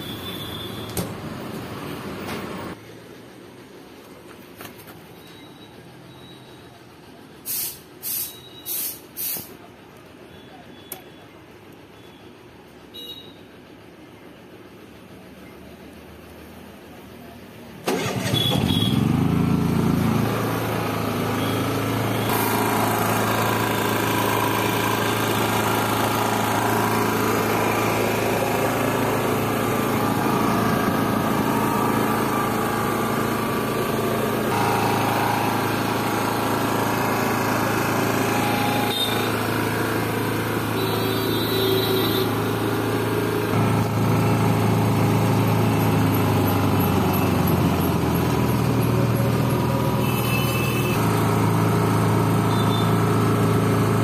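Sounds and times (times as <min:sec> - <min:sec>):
electric starter cranking: 0:17.8 - 0:54.0
generator engine running: 0:17.8 - 0:54.0.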